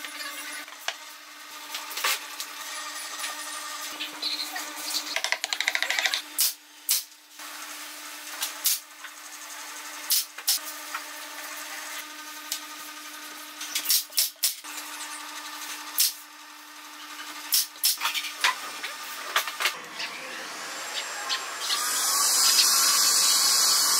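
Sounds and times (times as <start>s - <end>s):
wooden pieces tapping: 5.2s - 6.2s.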